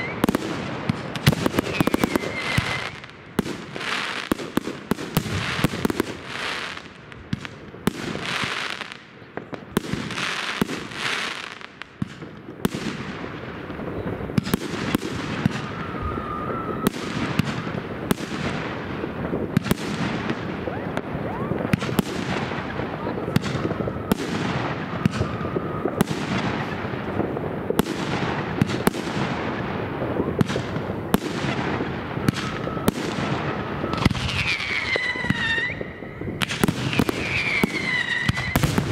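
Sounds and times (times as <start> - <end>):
fireworks crackling: 0.0 - 38.9
fireworks sharp bangs: 0.0 - 38.9
falling whistle: 1.6 - 3.0, 15.6 - 17.0, 32.4 - 36.2.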